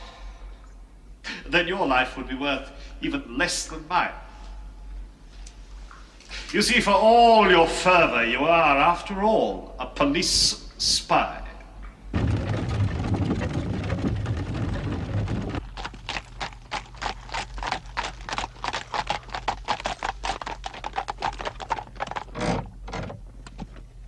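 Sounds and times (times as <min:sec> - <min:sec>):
carriage rumble: 0:12.1 - 0:24.0
hooves clip-clopping on road: 0:12.2 - 0:23.8.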